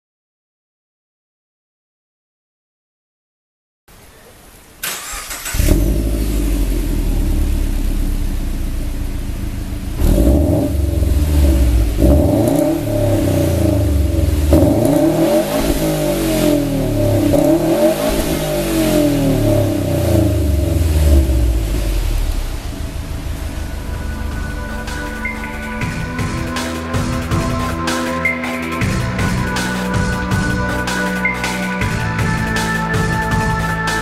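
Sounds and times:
car engine idling and revving: 4.9 - 31.1.

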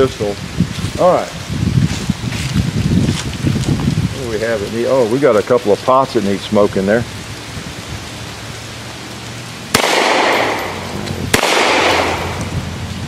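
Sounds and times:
gunshots with rolling echo: 9.6 - 12.9.

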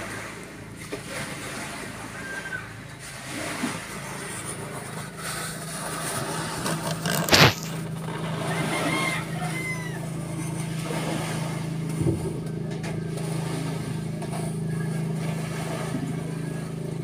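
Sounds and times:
low mechanical hum: 0.0 - 17.0
faint rooster crowing: 8.3 - 10.4.

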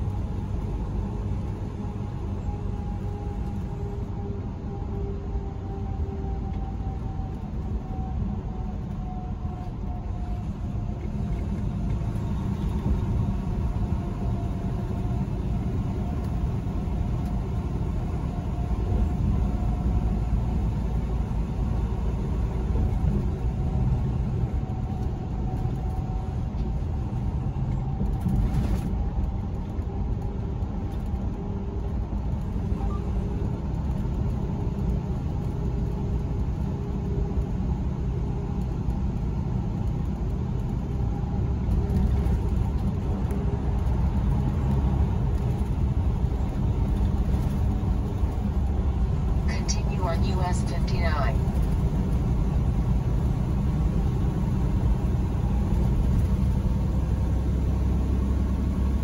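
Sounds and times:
truck engine and road noise: 0.0 - 59.0
faint steady hum: 49.4 - 51.6.

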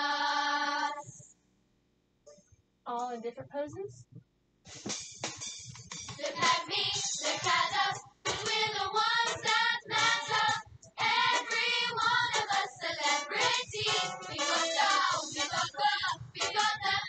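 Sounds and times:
young voices singing with music: 0.0 - 1.2, 6.2 - 17.0.

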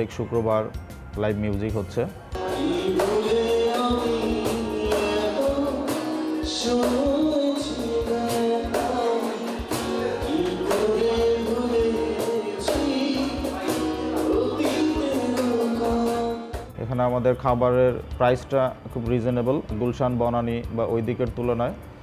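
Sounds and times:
cajon beat: 2.4 - 16.7
man singing: 2.4 - 16.7
strummed acoustic guitar: 2.4 - 16.7.

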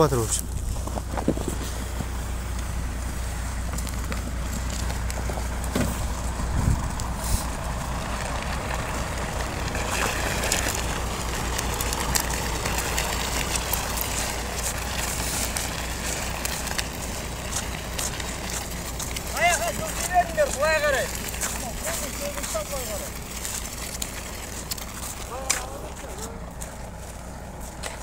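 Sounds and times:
wind buffeting microphone: 0.0 - 19.8
crackles and clicks: 0.0 - 28.0.

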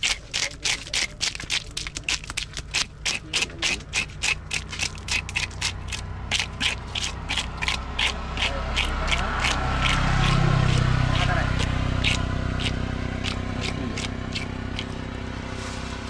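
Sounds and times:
knife scraping fish scales: 0.0 - 15.9.

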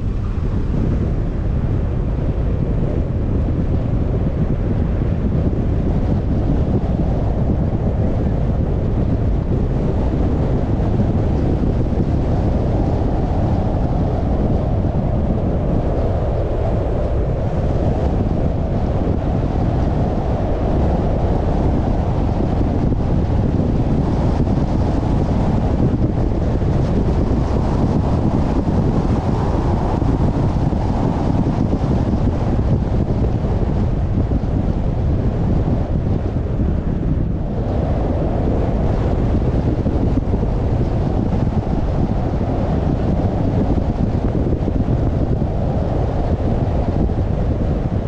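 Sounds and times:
car road and wind noise: 0.0 - 48.0
wind buffeting microphone: 0.0 - 48.0.

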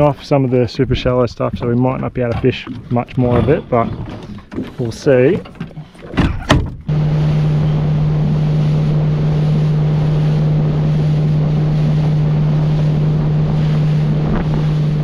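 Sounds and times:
water rushing past hull: 0.0 - 15.0
outboard motor running: 1.5 - 15.0
wind buffeting microphone: 7.8 - 15.0.

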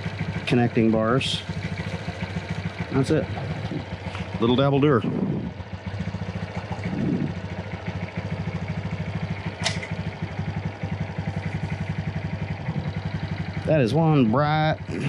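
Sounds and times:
motorcycle engine idling: 0.0 - 15.0
sharp click: 9.6 - 10.0.

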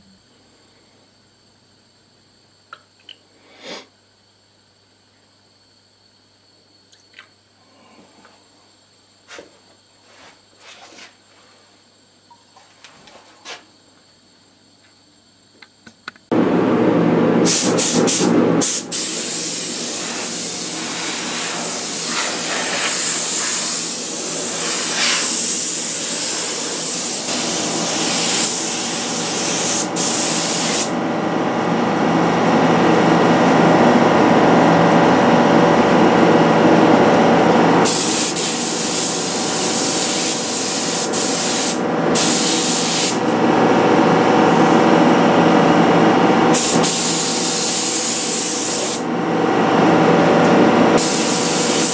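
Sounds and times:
steady low hum: 16.3 - 51.9
airbrush spraying hiss: 17.4 - 31.0, 37.8 - 43.2, 46.5 - 49.0, 51.0 - 51.9.

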